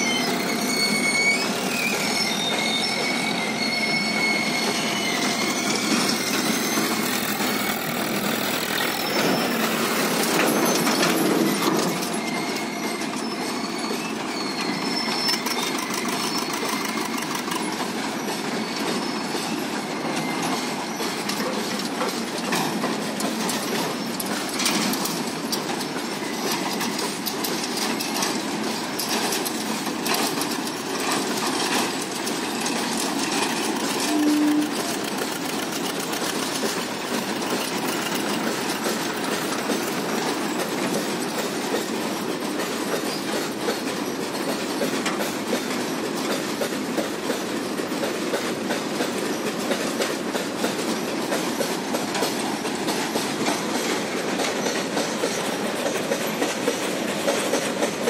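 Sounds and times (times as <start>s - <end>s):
high-pitched wheel squeal: 0.0s - 21.6s, 32.6s - 35.8s
train wheels rumbling on rail: 0.0s - 58.0s.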